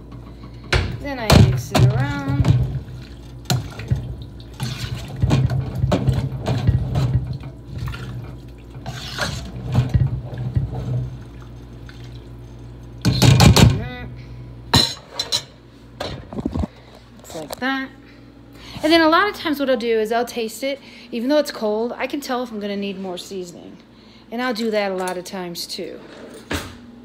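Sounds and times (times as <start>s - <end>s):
soup sloshing: 1.8s - 13.0s.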